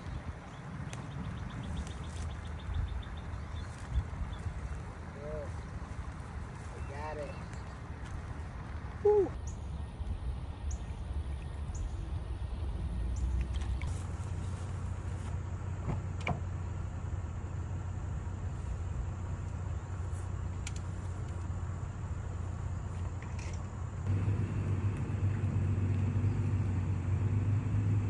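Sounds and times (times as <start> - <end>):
pickup truck engine rumble: 13.7 - 28.0.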